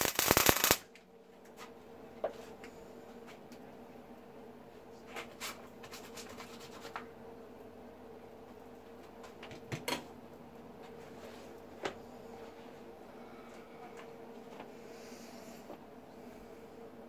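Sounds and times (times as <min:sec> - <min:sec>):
welder humming: 0:00.0 - 0:00.8.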